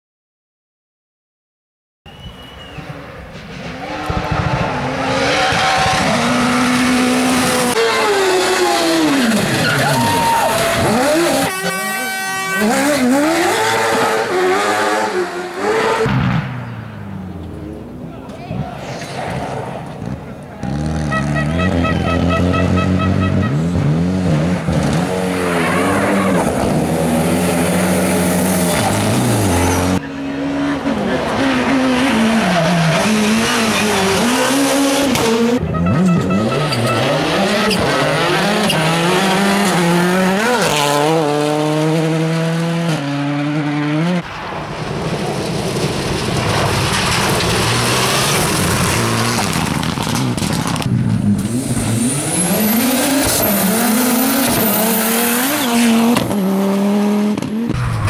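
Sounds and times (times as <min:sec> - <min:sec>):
rally car engines revving: 0:02.5 - 0:58.0.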